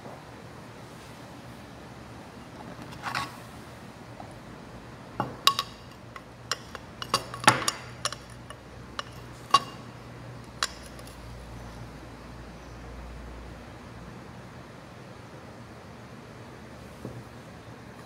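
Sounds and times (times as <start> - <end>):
glass test tube clinking: 5.2 - 11.2.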